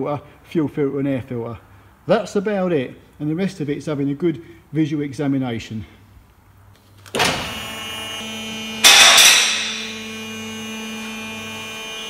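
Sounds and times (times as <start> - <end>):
hydraulic pump motor humming: 7.2 - 12.0.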